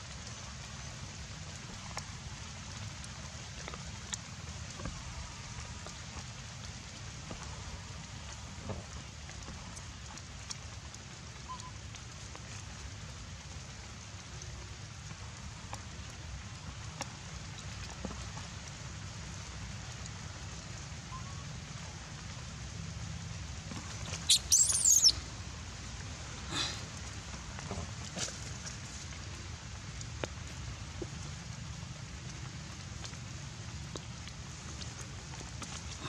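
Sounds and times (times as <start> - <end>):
steady rain: 0.0 - 36.0
raindrop clicks: 1.4 - 21.2, 23.6 - 36.0
shrill animal calls: 24.1 - 25.2.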